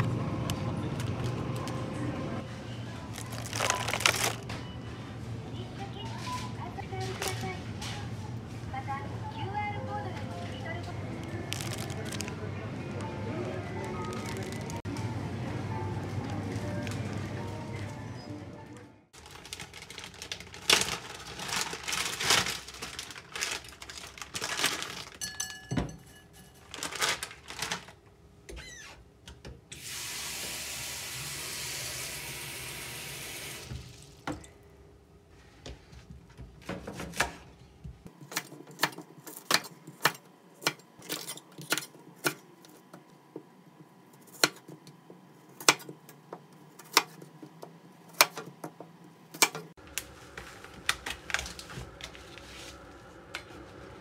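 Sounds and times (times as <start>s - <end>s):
plastic packaging crinkling: 3.0s - 4.5s, 11.2s - 12.5s, 13.7s - 14.9s, 19.2s - 25.3s, 26.6s - 28.0s, 49.8s - 53.0s.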